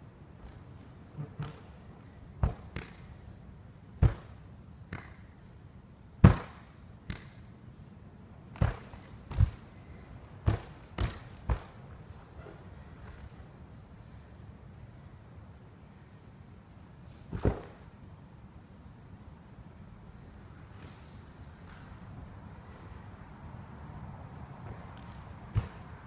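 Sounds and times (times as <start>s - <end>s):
bare feet stamping on wood: 10.4s - 11.8s.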